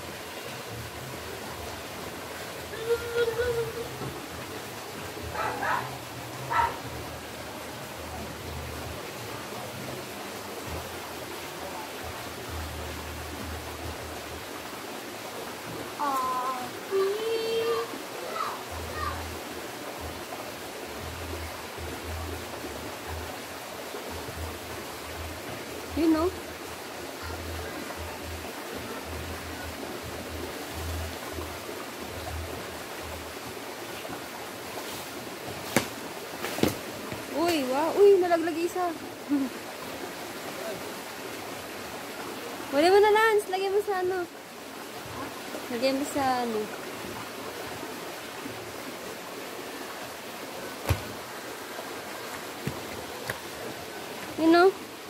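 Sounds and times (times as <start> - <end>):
outdoor background hiss: 0.0 - 55.0.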